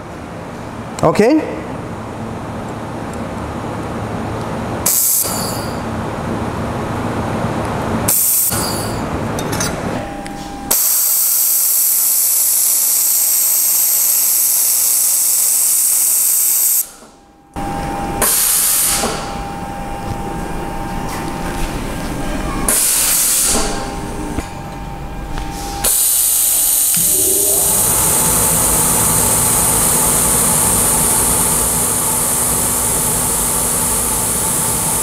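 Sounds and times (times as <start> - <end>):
laser welder hissing: 10.8 - 16.9, 25.8 - 35.0.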